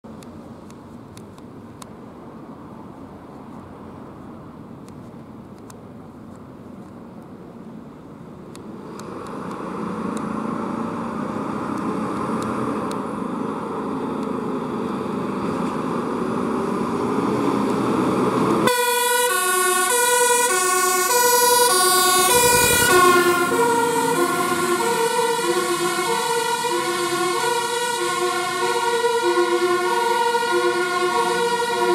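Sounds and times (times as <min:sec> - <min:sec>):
fire engine diesel engine: 0:00.1 - 0:31.9
two-tone siren: 0:18.6 - 0:31.9.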